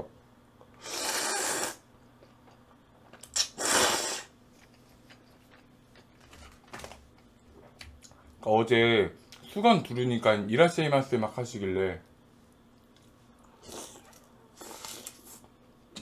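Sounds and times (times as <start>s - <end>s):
slurping noodles: 0.8s - 1.8s, 3.4s - 4.3s.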